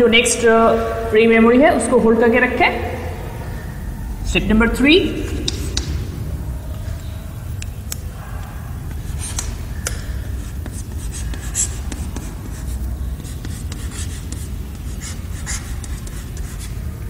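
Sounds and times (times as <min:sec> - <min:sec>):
steady low hum: 0:00.0 - 0:17.0
chalk tapping and scratching: 0:05.4 - 0:05.9, 0:08.9 - 0:16.8.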